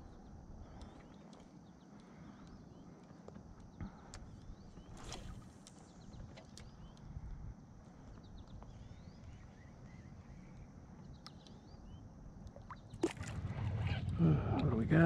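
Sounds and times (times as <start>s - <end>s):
small birds chirping: 0.0s - 7.3s, 7.9s - 13.0s
steady low rumble: 11.8s - 15.0s.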